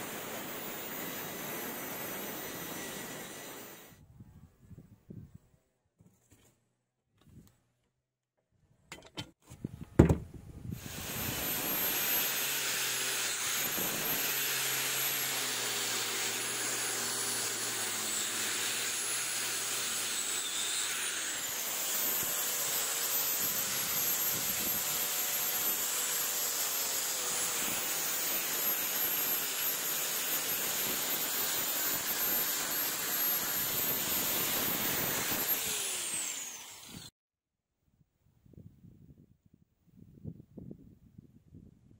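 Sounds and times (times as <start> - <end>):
high wavering motor whine: 0.0 - 4.0
wire brush grinder scraping steel: 0.0 - 4.0, 10.7 - 37.1.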